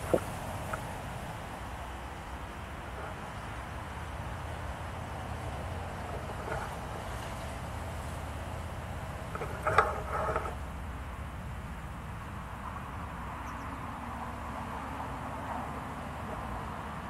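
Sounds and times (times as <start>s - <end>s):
boat engine thrumming: 0.0s - 11.4s.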